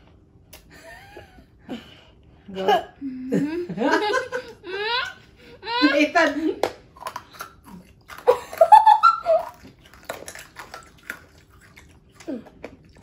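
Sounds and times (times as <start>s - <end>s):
wet mouth clicks and smacking: 9.4s - 13.0s.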